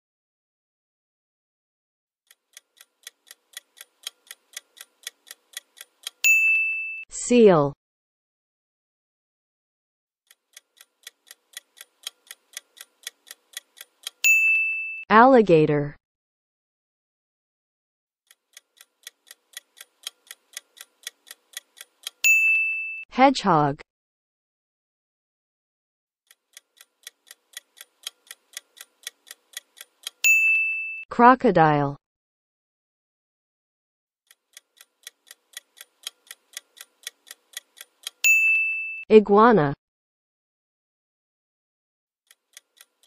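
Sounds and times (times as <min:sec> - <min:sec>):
clock ticking: 0:02.3 - 0:06.5, 0:10.3 - 0:14.6, 0:18.3 - 0:22.6, 0:26.3 - 0:30.4, 0:34.3 - 0:38.6, 0:42.3 - 0:43.0
bright ringing chime: 0:06.3 - 0:07.0, 0:14.3 - 0:15.0, 0:22.3 - 0:23.0, 0:30.3 - 0:31.0, 0:38.3 - 0:39.0.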